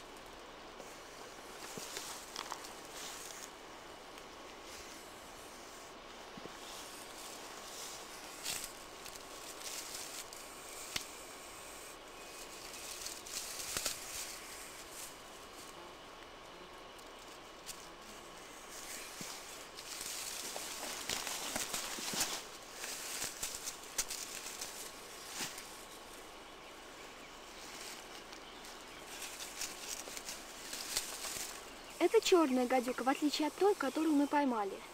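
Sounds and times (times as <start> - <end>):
snake hissing: 0.0 - 15.7
stick clicking among dry twigs: 1.6 - 4.6, 6.5 - 11.2, 12.2 - 15.2, 18.8 - 25.8, 27.7 - 31.7.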